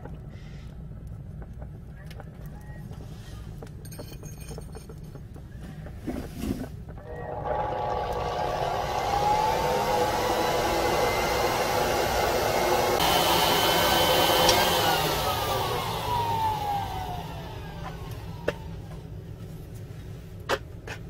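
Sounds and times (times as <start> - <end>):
electric blower whining: 7.0 - 19.0.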